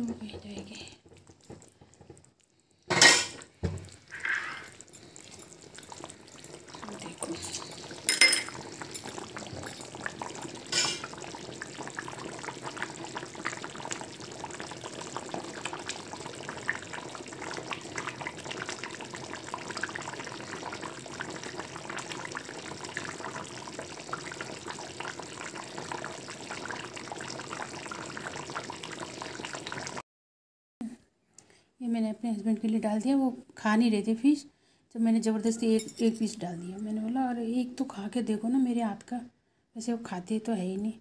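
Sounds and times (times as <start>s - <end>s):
curry bubbling and popping: 0.0s - 30.0s.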